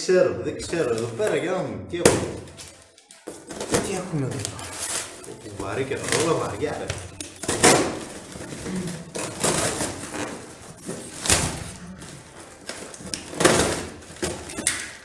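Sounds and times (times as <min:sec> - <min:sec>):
cardboard scraping: 0:03.4 - 0:14.4
cardboard ripping: 0:03.5 - 0:14.4.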